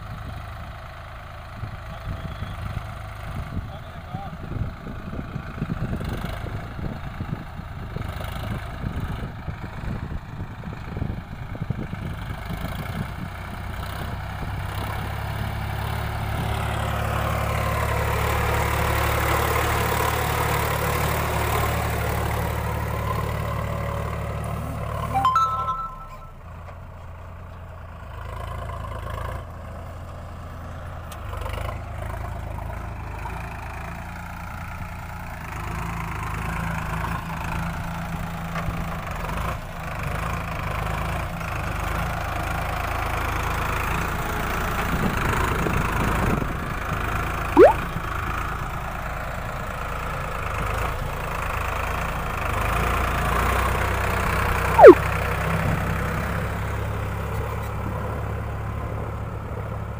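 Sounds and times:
tractor diesel engine under load: 0:00.0 - 0:25.1, 0:26.9 - 0:59.9.

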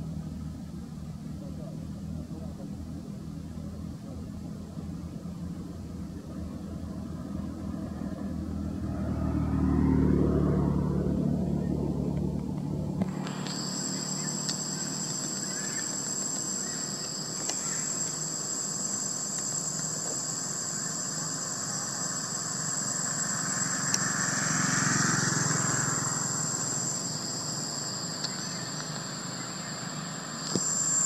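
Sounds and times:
high-pitched whine: 0:00.0 - 0:31.0
vehicle passing: 0:07.0 - 0:19.2, 0:20.0 - 0:31.0
wide hiss: 0:13.0 - 0:31.0.

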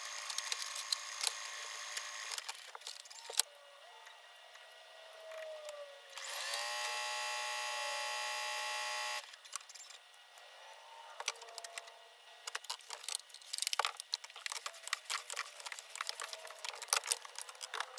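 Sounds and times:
sewing machine motor whine: 0:00.0 - 0:03.4, 0:06.1 - 0:09.3
plastic wrap crackling: 0:12.5 - 0:17.9.

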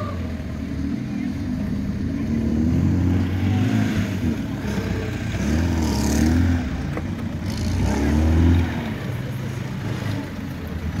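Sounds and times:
engine revving: 0:02.3 - 0:09.1.

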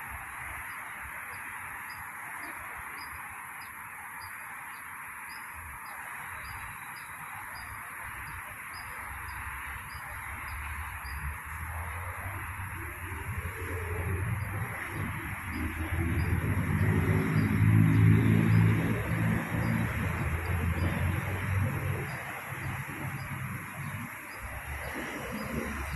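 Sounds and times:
constant hum: 0:00.0 - 0:25.9
high steady buzz: 0:00.0 - 0:25.9
faint high chirp: 0:00.7 - 0:11.6.

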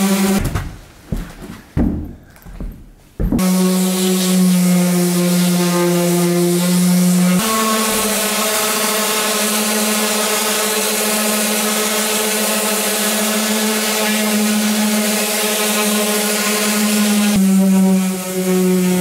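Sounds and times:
orbital sander on wood: 0:00.0 - 0:00.4, 0:03.4 - 0:19.0.

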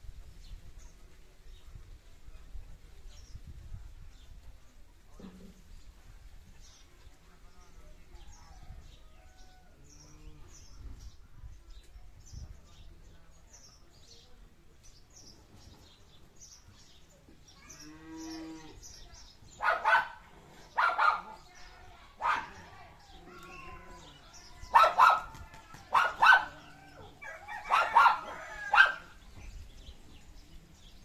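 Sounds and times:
dog barking loudly: 0:19.5 - 0:21.4, 0:22.2 - 0:22.6, 0:24.7 - 0:26.6, 0:27.3 - 0:29.1.

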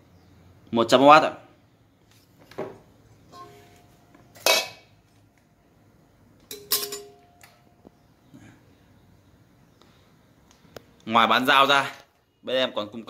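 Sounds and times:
metal blade clanking in steel bowl: 0:03.3 - 0:03.7, 0:04.4 - 0:04.8, 0:06.5 - 0:07.2.

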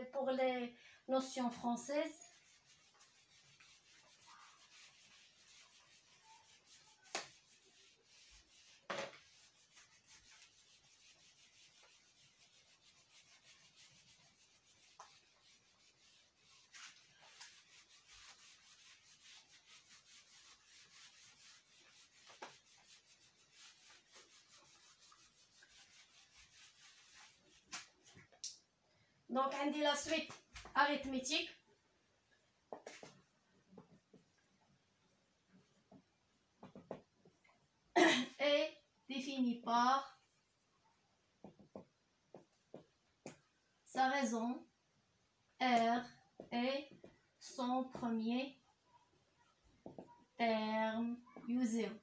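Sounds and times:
eraser rubbing on whiteboard: 0:02.1 - 0:28.2.

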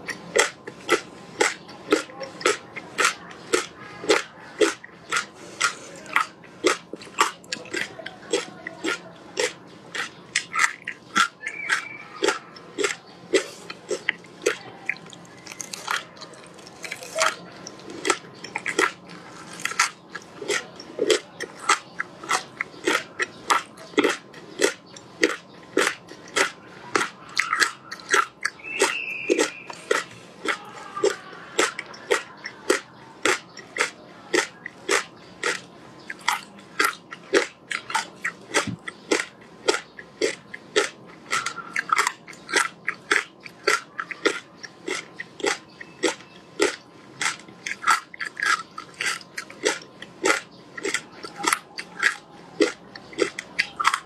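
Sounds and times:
crunching frozen fruit: 0:00.0 - 0:54.0.

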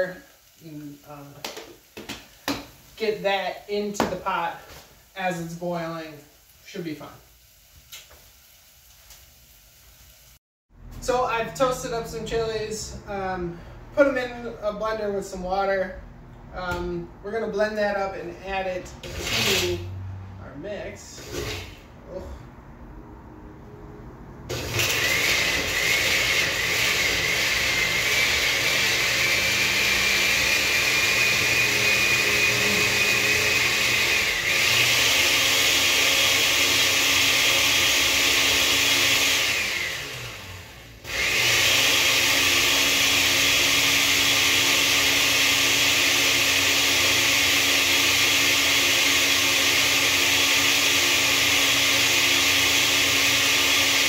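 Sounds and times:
blender motor whining: 0:19.0 - 0:19.9, 0:21.2 - 0:21.8, 0:24.5 - 0:54.0.

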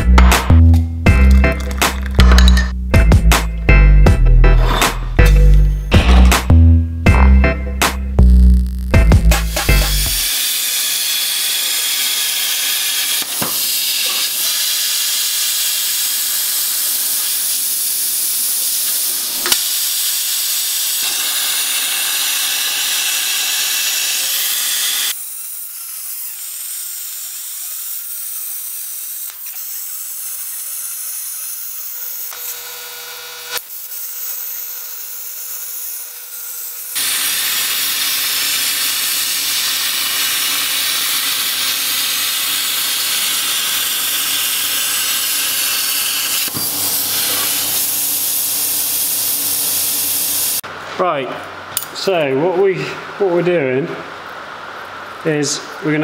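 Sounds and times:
plasma cutter torch hissing: 0:09.4 - 0:32.4, 0:35.7 - 0:50.6.

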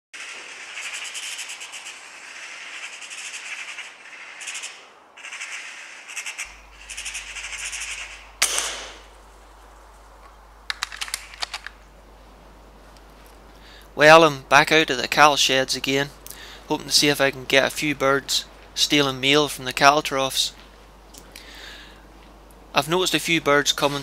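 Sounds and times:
magpie chattering: 0:00.2 - 0:09.2
gunshot: 0:08.4 - 0:09.1
quick clicks: 0:10.2 - 0:11.8.

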